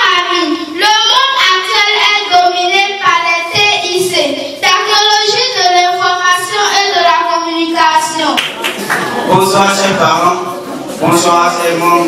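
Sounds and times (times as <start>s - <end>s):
girl singing into a microphone: 0.0s - 7.9s.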